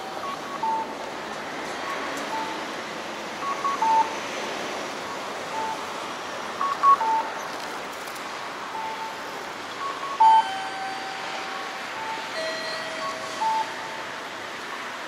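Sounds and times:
street traffic: 0.0 - 15.0
crossing signal two-note calls: 8.8 - 9.2, 9.8 - 14.2.

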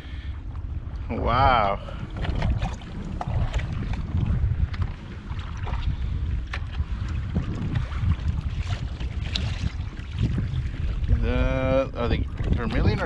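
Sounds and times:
water lapping against kayak hull: 0.0 - 13.0
wind buffeting microphone: 0.0 - 13.0.

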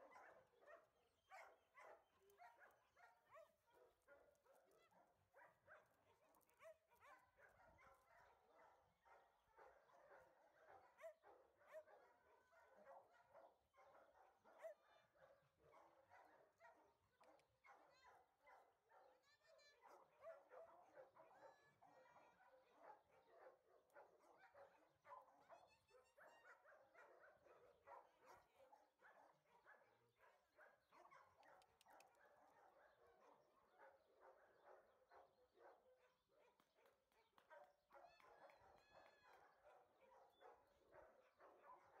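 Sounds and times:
many dogs barking: 0.0 - 42.0
high dog yelps: 37.6 - 41.8.

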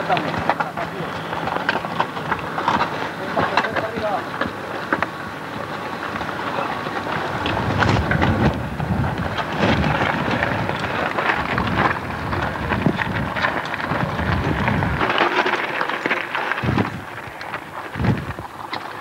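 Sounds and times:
bike tyres on gravel: 0.0 - 19.0
wind on microphone: 7.0 - 15.2, 16.6 - 18.6.

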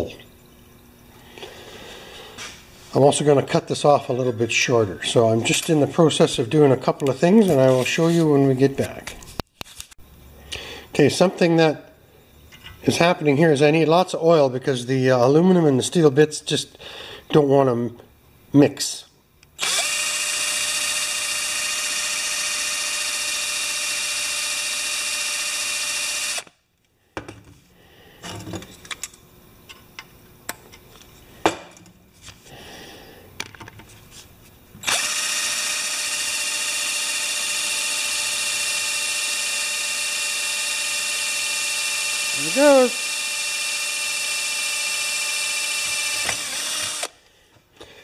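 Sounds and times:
power drill boring into metal: 19.6 - 26.5, 34.8 - 47.2.

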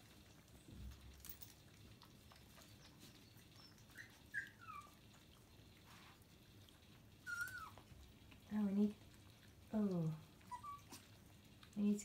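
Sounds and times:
puppy whimpering squeaks: 2.6 - 5.0, 7.2 - 7.8, 10.4 - 11.0.

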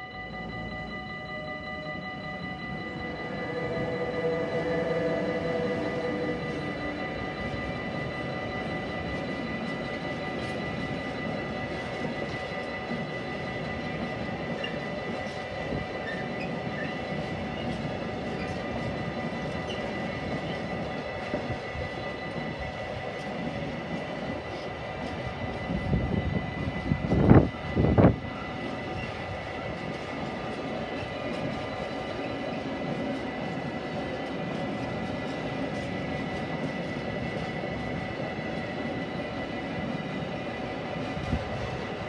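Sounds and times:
high-pitched tone: 0.0 - 23.5
train wheels rumbling on rails: 0.0 - 42.0.

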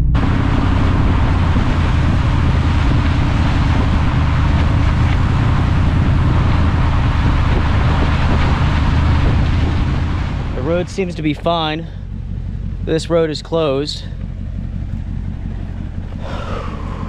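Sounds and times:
wind noise on microphone: 0.0 - 10.6
engine hum: 0.0 - 17.0
tyres on gravel: 0.2 - 17.0.

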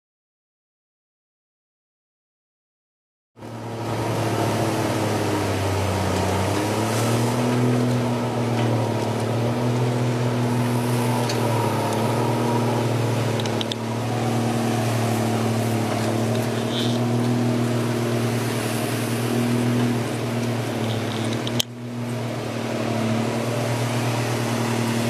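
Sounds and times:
diesel engine running: 3.4 - 25.0.

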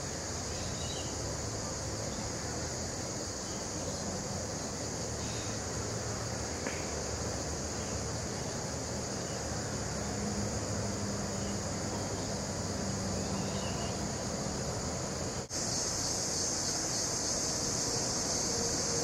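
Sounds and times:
high hiss: 0.0 - 19.0.

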